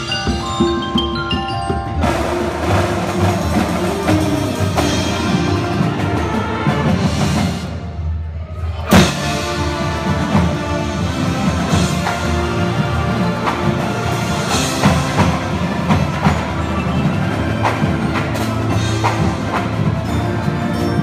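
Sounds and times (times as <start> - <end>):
marimbas and vibraphones playing: 0.0 - 6.4, 8.9 - 21.0.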